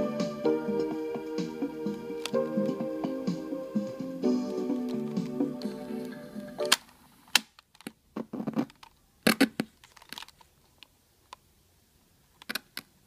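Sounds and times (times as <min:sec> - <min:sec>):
cable handling clicks and crackles: 0:02.2 - 0:02.4, 0:08.6 - 0:11.4.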